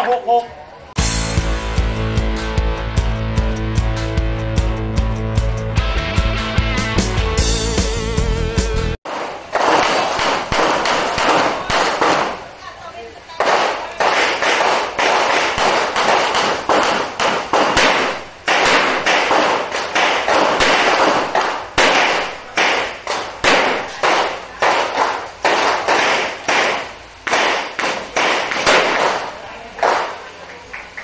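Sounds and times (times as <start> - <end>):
revolver gunshots: 9.1 - 12.6, 13.4 - 30.2.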